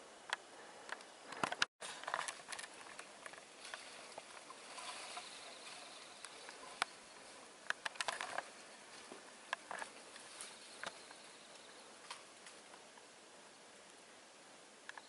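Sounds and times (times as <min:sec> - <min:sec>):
twigs crackling and snapping: 0:00.9 - 0:12.8
footsteps in crusty snow: 0:01.8 - 0:07.6.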